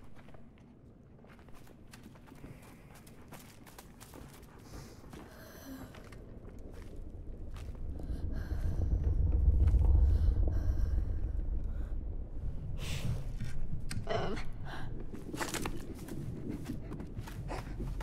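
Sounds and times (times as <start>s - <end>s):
deep rumble: 4.5s - 18.0s.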